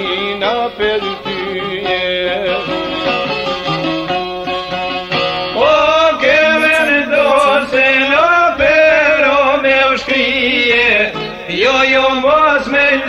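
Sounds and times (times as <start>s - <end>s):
man singing long wavering notes: 6.3s - 8.0s.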